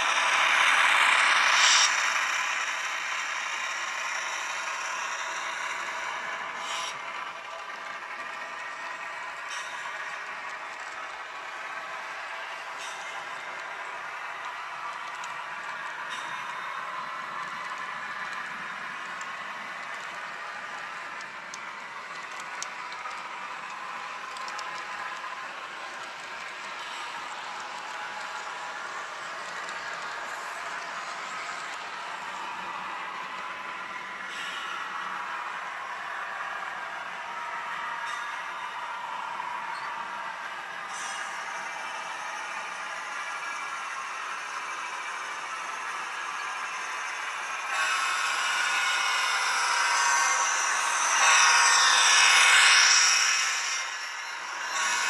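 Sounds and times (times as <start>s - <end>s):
model train wheels clattering: 0.0s - 55.0s.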